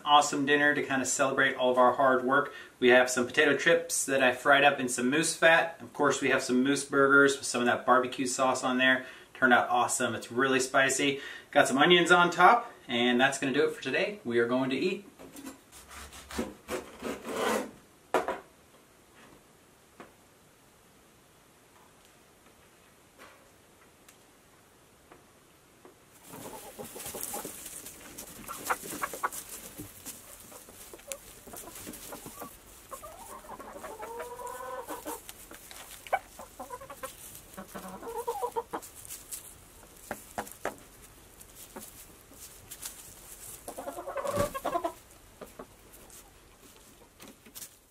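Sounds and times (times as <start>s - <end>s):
pecking and scratching in straw: 26.1s - 47.9s
chicken drawn-out calls: 26.2s - 47.7s
chickens clucking: 26.2s - 47.7s.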